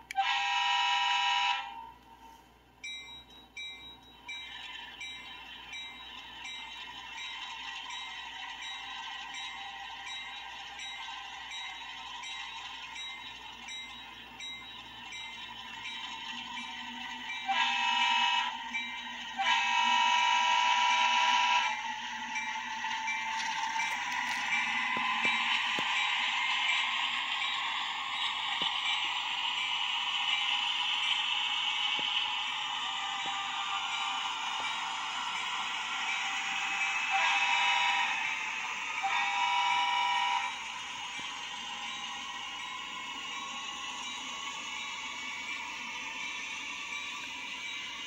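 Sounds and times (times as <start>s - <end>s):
locomotive air horn blasts: 0.1s - 1.8s, 17.4s - 18.6s, 19.4s - 21.8s, 37.1s - 38.2s, 39.0s - 40.5s.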